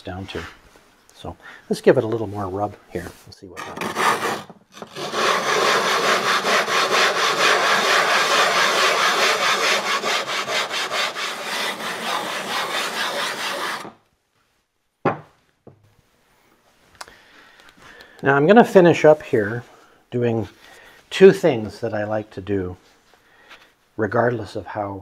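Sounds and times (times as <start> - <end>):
hand plane grinding on abrasive plate: 3.6 - 14.0.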